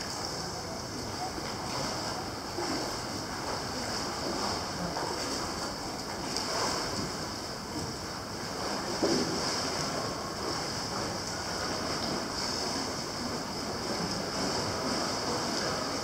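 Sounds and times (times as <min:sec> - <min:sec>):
pool water lapping: 0:00.0 - 0:16.0.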